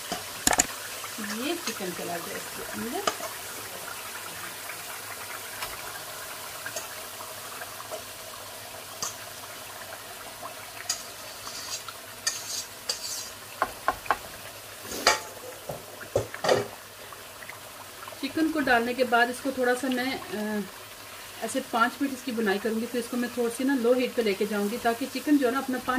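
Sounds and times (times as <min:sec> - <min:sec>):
utensils clicking against pan: 0:00.0 - 0:00.7, 0:02.9 - 0:03.4, 0:10.8 - 0:13.3
sauce sizzling in a frying pan: 0:00.0 - 0:25.9.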